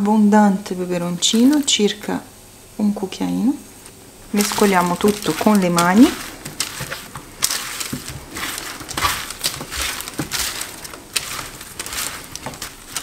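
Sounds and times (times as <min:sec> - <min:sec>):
baking paper crinkling: 0:00.9 - 0:02.1, 0:04.3 - 0:13.0
hands tossing food on tray: 0:01.2 - 0:01.8, 0:04.3 - 0:13.0.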